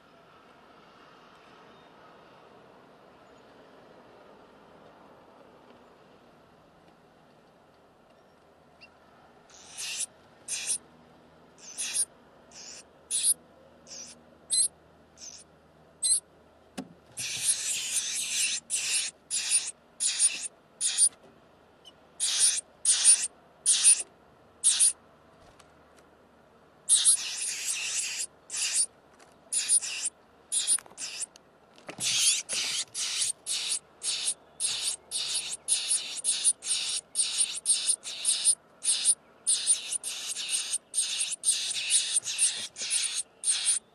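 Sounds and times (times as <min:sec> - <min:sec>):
nestlings begging calls: 0:09.5 - 0:10.8, 0:11.6 - 0:15.4, 0:16.0 - 0:16.2, 0:17.2 - 0:21.1, 0:22.2 - 0:24.0, 0:24.6 - 0:25.0, 0:26.9 - 0:28.9, 0:29.5 - 0:31.3, 0:32.0 - 0:43.9.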